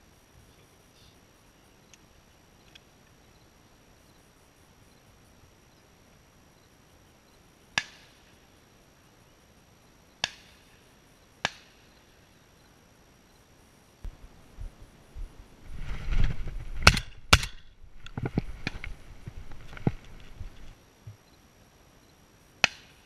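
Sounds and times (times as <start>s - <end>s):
shotgun shots: 16.8s - 17.6s.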